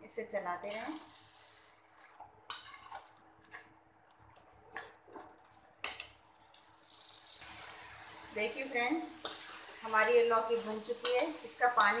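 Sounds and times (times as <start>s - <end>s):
food frying: 0.0s - 12.0s
metal spoon scraping a pan: 0.6s - 3.7s, 8.6s - 12.0s.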